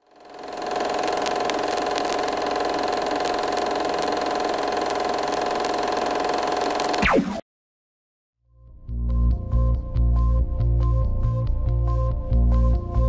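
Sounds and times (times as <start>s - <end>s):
film projector whirring: 0.0s - 7.0s
projector clicks: 0.6s - 7.0s.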